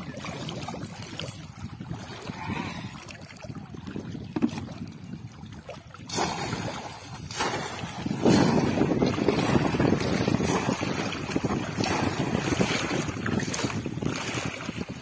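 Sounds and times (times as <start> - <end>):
water sloshing from wading: 0.0 - 15.0
fish trap splashing into water: 6.1 - 13.0.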